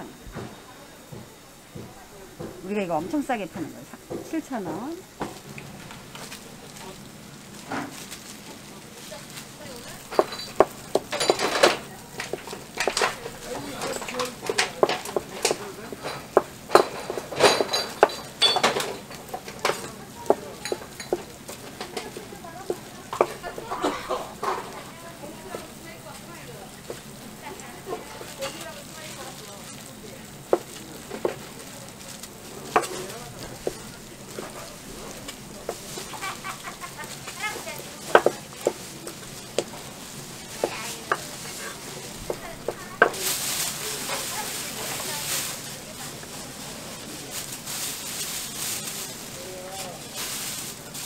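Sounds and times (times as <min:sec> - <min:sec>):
knife chopping on plastic board: 0:38.1 - 0:38.8.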